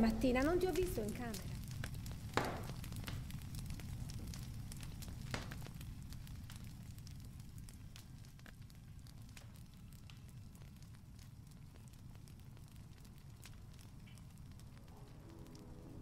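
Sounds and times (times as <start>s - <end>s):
low steady hum: 0.0s - 2.8s, 13.8s - 16.0s
wood fire crackling and popping: 0.0s - 16.0s.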